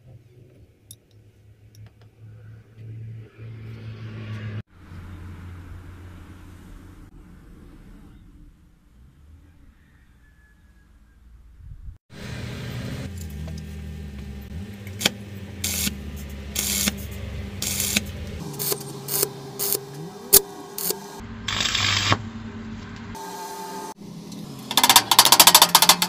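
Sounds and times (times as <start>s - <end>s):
welding arc crackling: 14.3s - 22.3s.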